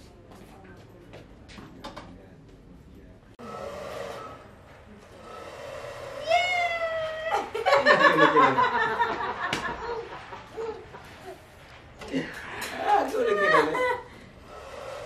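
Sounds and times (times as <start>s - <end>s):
adults laughing: 7.3s - 14.2s.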